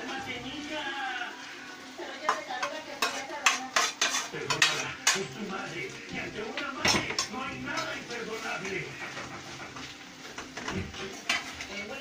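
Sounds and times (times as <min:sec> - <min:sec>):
utensil scraping and clinking on pan: 0:02.2 - 0:05.4, 0:06.8 - 0:08.5, 0:09.1 - 0:11.9.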